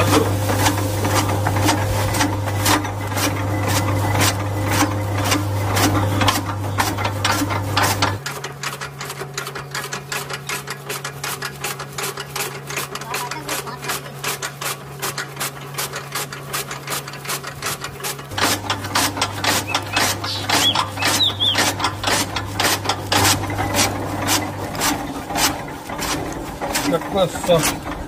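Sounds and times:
blades chopping fodder: 0.0s - 28.0s
chaff cutter motor hum: 0.0s - 28.0s.

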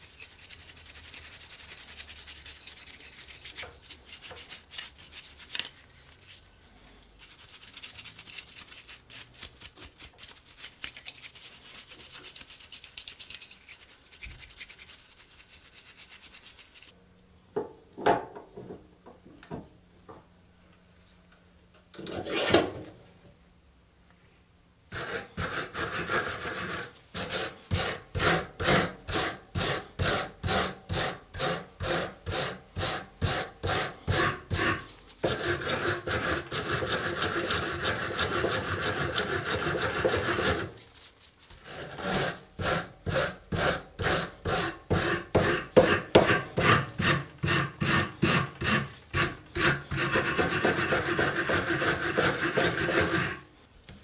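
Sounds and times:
wire brush scrubbing metal: 24.9s - 40.8s, 41.7s - 53.4s.

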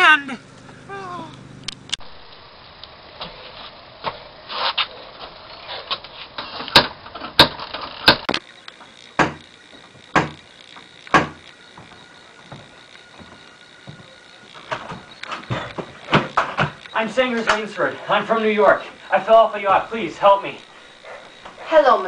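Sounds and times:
knocking on a door: 10.1s - 10.4s, 11.1s - 11.9s.

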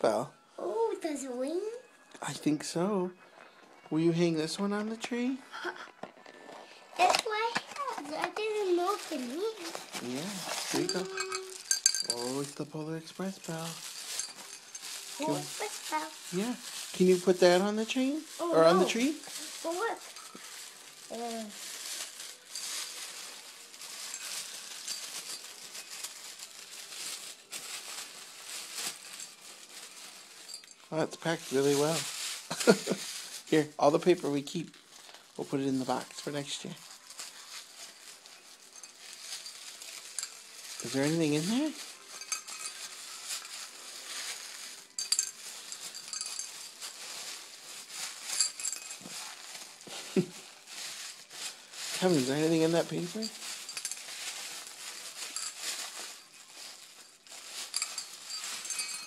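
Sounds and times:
tissue paper rustling: 3.8s - 59.0s
faint metallic tinkles: 9.0s - 33.2s, 35.8s - 49.6s, 50.4s - 59.0s.

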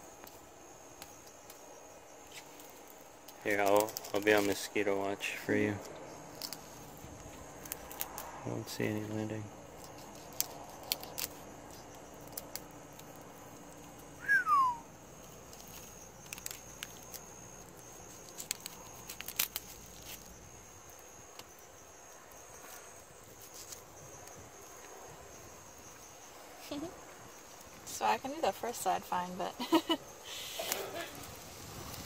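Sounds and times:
night insects trilling: 0.0s - 32.0s
falling whistle-like chirp: 14.2s - 14.9s.

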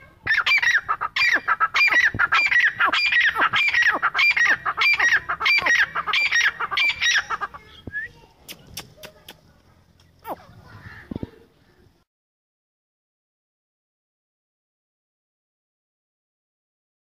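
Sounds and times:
francolin calling: 0.3s - 7.9s.

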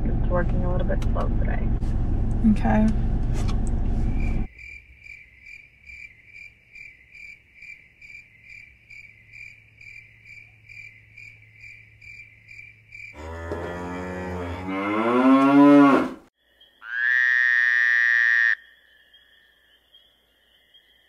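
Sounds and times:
cricket chirping: 4.1s - 13.4s, 16.4s - 21.0s.

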